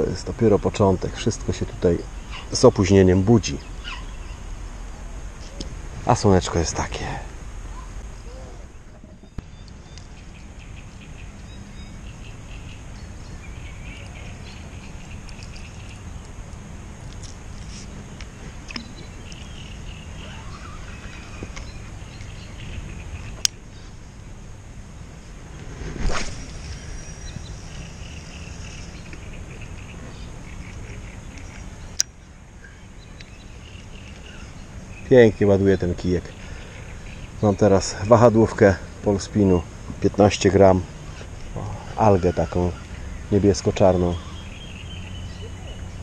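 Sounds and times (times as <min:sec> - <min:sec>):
steady low rumble: 0:00.0 - 0:42.2
faint bird chirps: 0:01.1 - 0:05.6, 0:18.6 - 0:23.9, 0:41.4 - 0:46.0
faint high chirps: 0:18.7 - 0:23.5.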